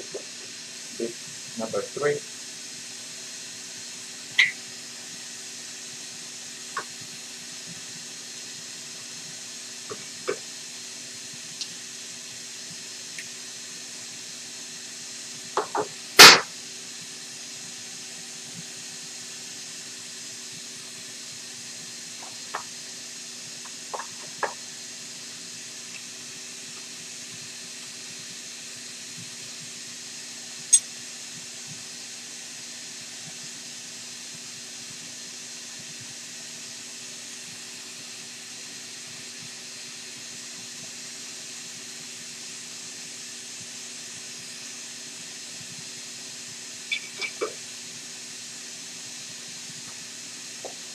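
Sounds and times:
steady hiss: 0:00.0 - 0:50.9.

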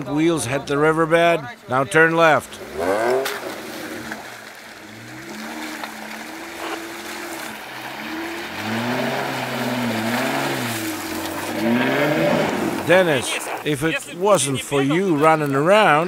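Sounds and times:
car engine revving: 0:02.4 - 0:13.9
water and slush splashing: 0:02.4 - 0:15.6.

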